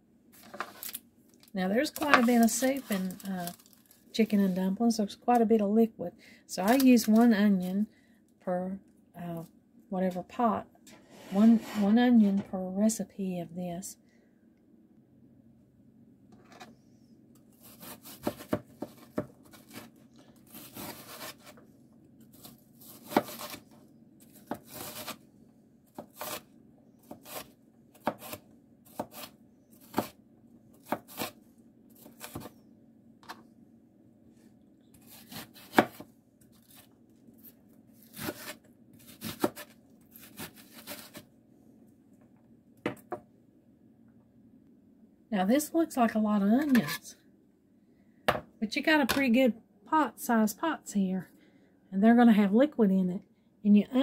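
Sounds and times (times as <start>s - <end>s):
knife slicing through onion: 17.6s - 19.9s, 20.5s - 21.6s, 22.3s - 23.6s, 24.4s - 25.2s, 26.0s - 30.2s, 30.8s - 31.4s, 32.0s - 32.5s, 35.0s - 36.1s, 38.0s - 41.3s.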